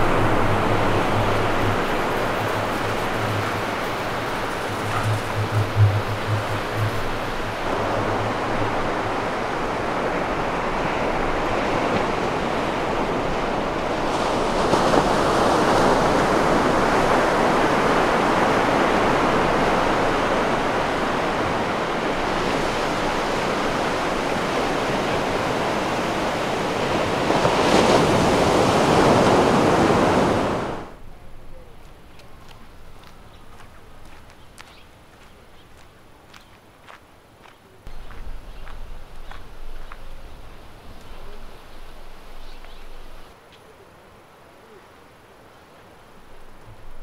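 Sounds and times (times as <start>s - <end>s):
waves breaking on sandy beach: 0.0s - 31.0s.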